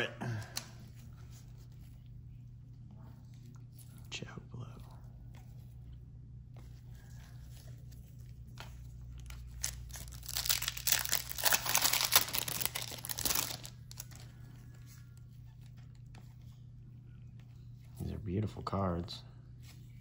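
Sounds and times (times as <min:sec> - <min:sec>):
foil wrapper tearing and crinkling: 0:09.2 - 0:14.2.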